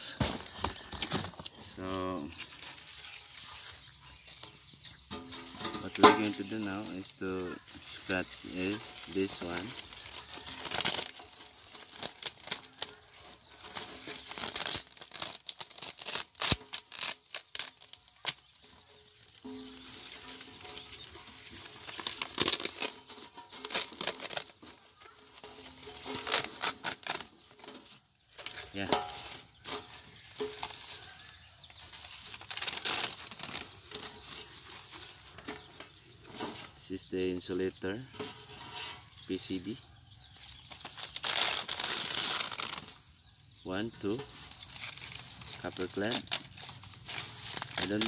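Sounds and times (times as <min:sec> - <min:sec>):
scraping rustle: 0:00.0 - 0:48.0
circuit board crackling and tearing: 0:07.8 - 0:27.6, 0:32.1 - 0:34.3, 0:40.8 - 0:43.0, 0:44.1 - 0:48.0.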